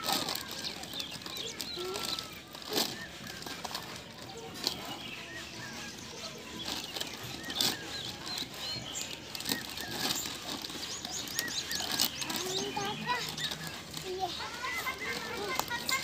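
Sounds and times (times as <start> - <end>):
birds chirping: 0.0 - 16.0
leaves and plastic rustling: 0.0 - 16.0.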